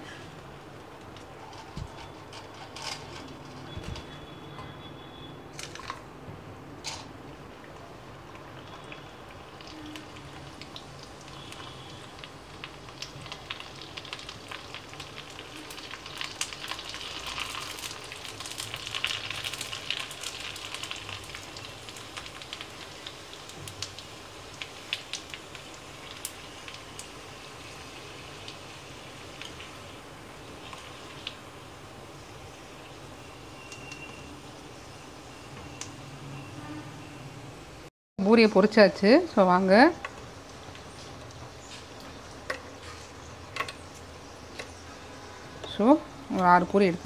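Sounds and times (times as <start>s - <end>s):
oil sizzling with pops: 6.8s - 36.0s, 38.6s - 47.0s.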